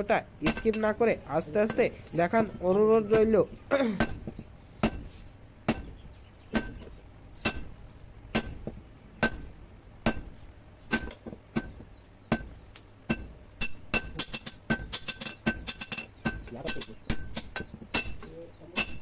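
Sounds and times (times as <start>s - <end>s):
hammer clanking on anvil: 13.1s - 19.0s.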